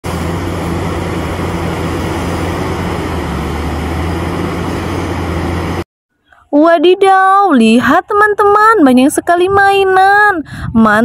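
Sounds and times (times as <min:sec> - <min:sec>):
excavator diesel engine running: 0:00.0 - 0:05.8
machinery noise: 0:00.0 - 0:05.8.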